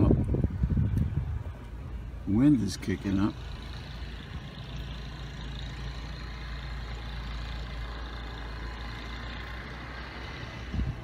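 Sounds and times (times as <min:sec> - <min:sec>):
wind rumbling on microphone: 0:00.0 - 0:02.2, 0:10.2 - 0:11.0.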